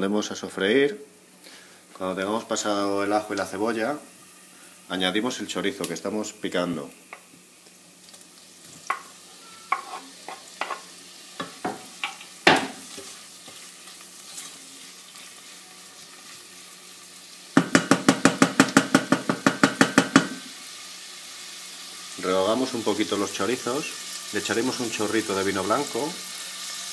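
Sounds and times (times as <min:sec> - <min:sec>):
oil sizzling: 0:00.9 - 0:26.9
knocks against a pot: 0:17.6 - 0:20.4.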